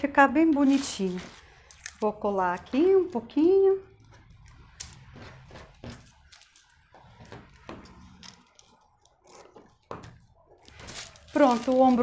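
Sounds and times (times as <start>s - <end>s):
paper crackling: 0.3s - 2.8s, 10.6s - 12.0s
scissors snipping paper: 10.6s - 12.0s.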